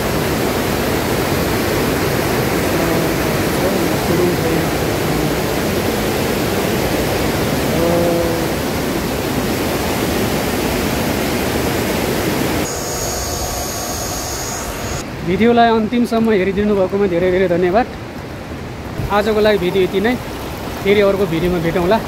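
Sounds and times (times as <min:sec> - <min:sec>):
faint high whine: 0:12.1 - 0:15.5
water rushing through a grate: 0:19.0 - 0:22.0.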